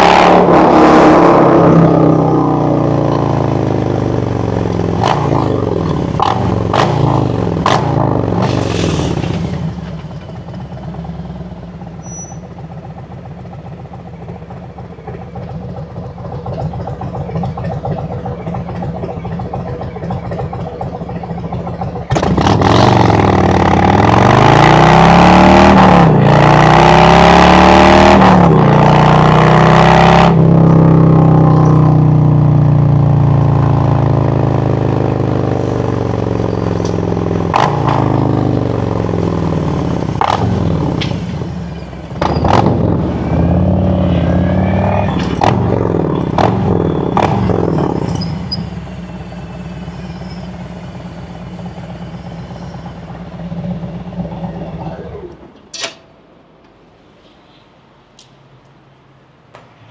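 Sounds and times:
motorcycle engine revving: 0:00.0 - 0:11.4, 0:15.1 - 0:49.2.

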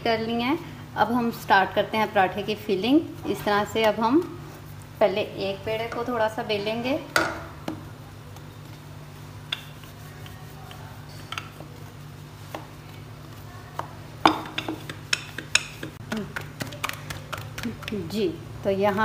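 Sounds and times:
steady low hum: 0:00.0 - 0:19.0
hands patting dough on board: 0:07.6 - 0:18.2.

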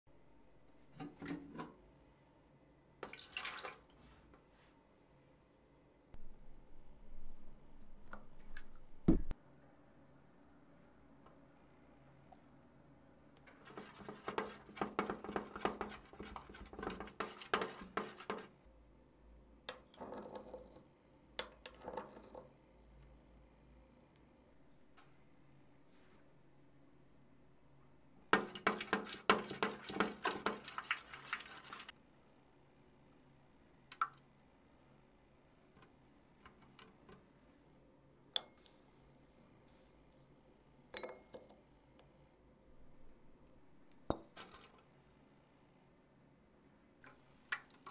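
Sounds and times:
metal whisk scraping container: 0:13.5 - 0:18.6, 0:28.4 - 0:31.9.

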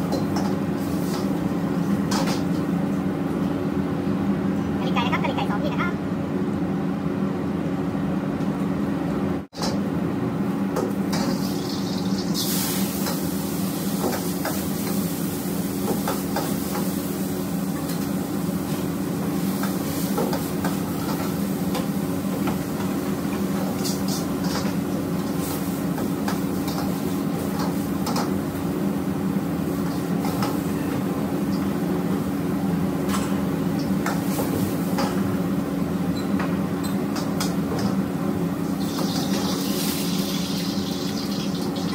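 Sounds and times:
gas burners rumbling: 0:00.0 - 0:41.9
vegetables and noodles sizzling: 0:11.0 - 0:32.0, 0:38.6 - 0:41.9.

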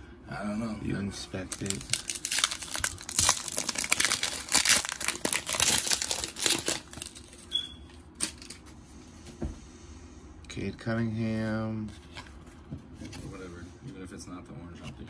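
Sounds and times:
wrapper crinkling as torn open: 0:01.4 - 0:07.4.

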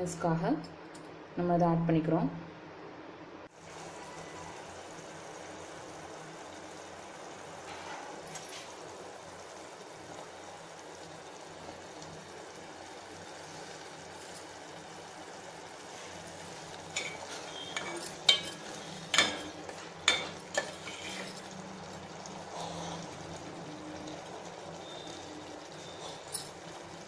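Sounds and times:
pickle bubbling and sizzling in oil: 0:03.5 - 0:27.0
metal spoon scraping a pot: 0:17.0 - 0:21.5.

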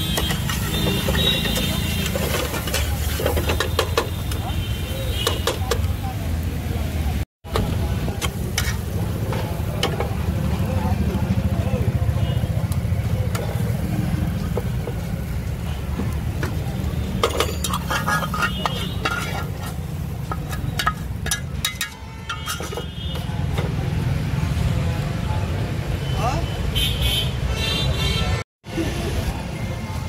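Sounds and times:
metal spatula scraping a pan: 0:00.0 - 0:04.4, 0:08.2 - 0:09.2, 0:17.1 - 0:23.6.

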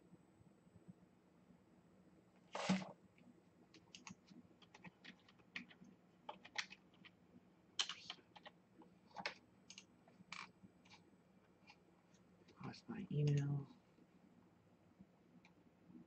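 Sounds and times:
typing on computer keyboard: 0:03.8 - 0:07.2, 0:07.8 - 0:10.5.

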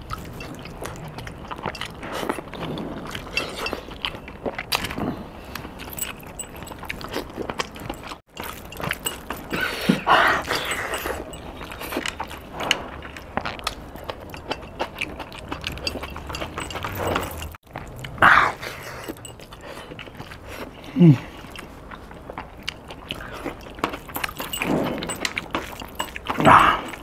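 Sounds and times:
wet chewing: 0:00.0 - 0:27.0.

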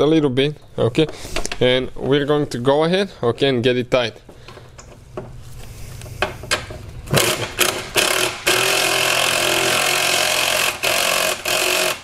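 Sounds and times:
cordless power tool motor whine: 0:07.1 - 0:12.0.

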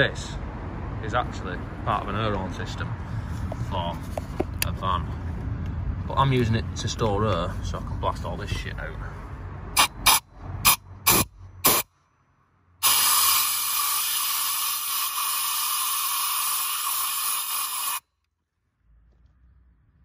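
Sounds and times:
compressed air blasts and hiss: 0:09.8 - 0:11.9, 0:12.8 - 0:18.0.

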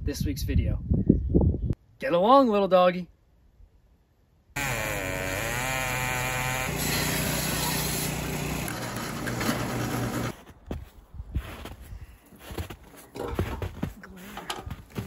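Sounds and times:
circular log saw cutting: 0:04.6 - 0:10.4.

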